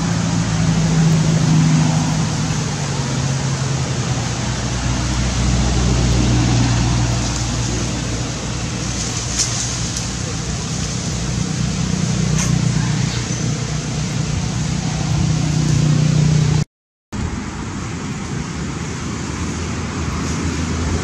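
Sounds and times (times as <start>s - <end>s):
constant hiss: 0.0s - 14.8s.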